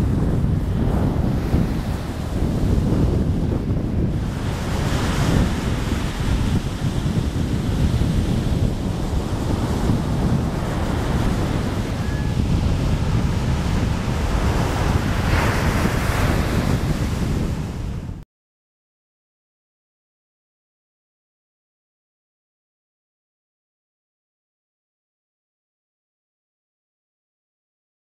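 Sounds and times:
ocean surf breaking: 0:00.0 - 0:18.2
wind buffeting microphone: 0:00.0 - 0:18.2.

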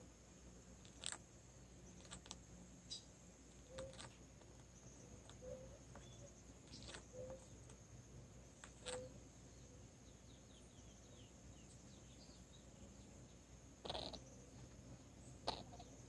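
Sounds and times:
soft short chirps: 0:08.6 - 0:09.2.

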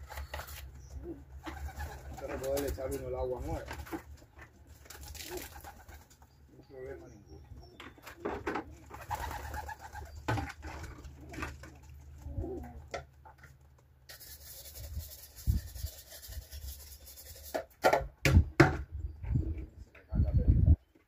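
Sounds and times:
pigeons cooing: 0:00.0 - 0:02.6, 0:04.9 - 0:06.1, 0:07.0 - 0:13.2.

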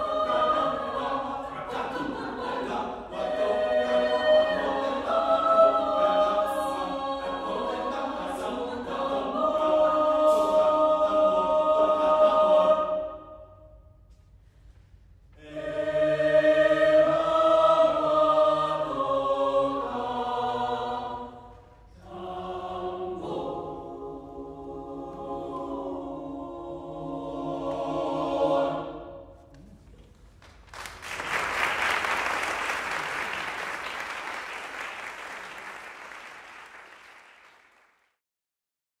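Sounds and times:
mixed choir singing: 0:00.0 - 0:13.6, 0:15.4 - 0:29.4
audience applause: 0:30.6 - 0:38.1.

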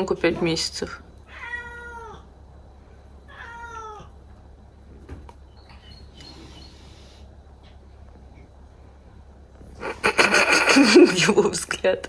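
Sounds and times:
kitten meowing: 0:01.3 - 0:02.2, 0:03.3 - 0:04.1.

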